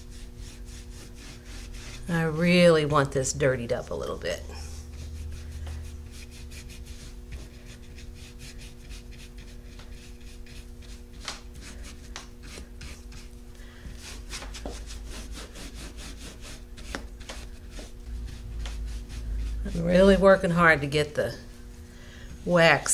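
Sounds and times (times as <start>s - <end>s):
brush bristles scrubbing: 0.0s - 2.8s, 14.0s - 21.9s.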